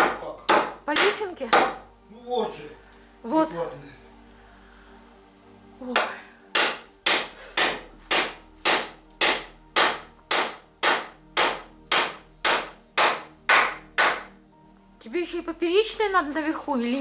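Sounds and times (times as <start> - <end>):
hammer driving nails into wood: 6.0 - 14.3.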